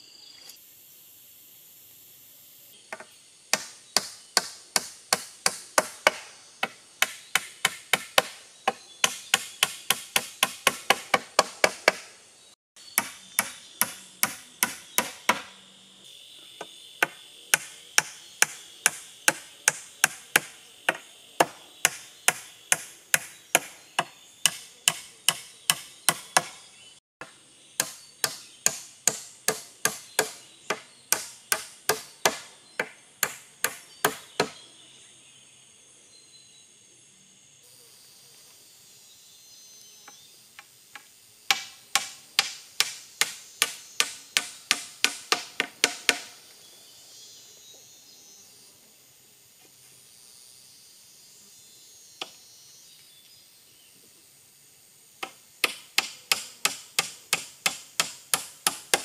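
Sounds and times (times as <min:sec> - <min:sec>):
wood being chopped: 0:02.9 - 0:12.1, 0:13.0 - 0:15.5, 0:27.8 - 0:34.6, 0:41.5 - 0:46.4, 0:55.2 - 0:59.0.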